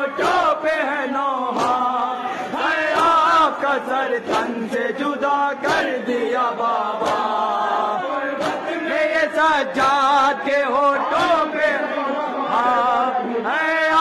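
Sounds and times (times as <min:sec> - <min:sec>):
men chanting a lament: 0:00.0 - 0:14.0
hands slapping chests: 0:01.4 - 0:07.6, 0:08.3 - 0:08.8.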